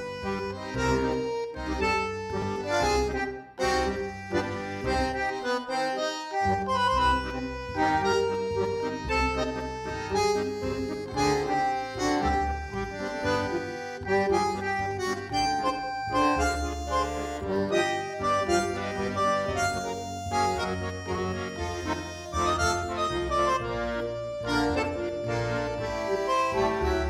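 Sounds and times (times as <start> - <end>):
tango music with accordion: 0.0 - 27.0.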